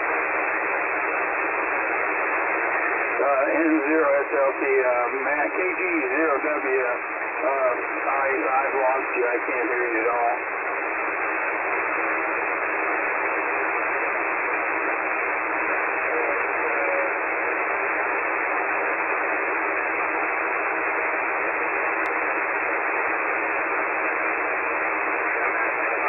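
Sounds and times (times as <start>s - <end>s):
radio band noise hiss: 0.0s - 26.0s.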